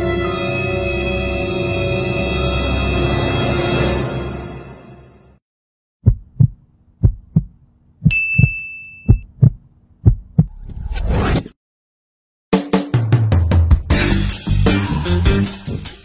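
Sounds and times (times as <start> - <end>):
heartbeat thumps: 6.0 - 10.6
high ding: 8.1 - 9.3.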